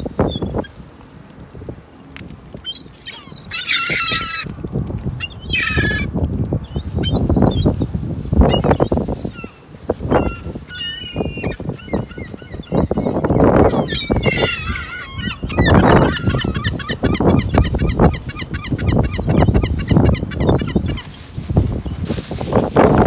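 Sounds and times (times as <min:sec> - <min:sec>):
gulls calling: 0:02.7 - 0:04.6, 0:06.8 - 0:21.4.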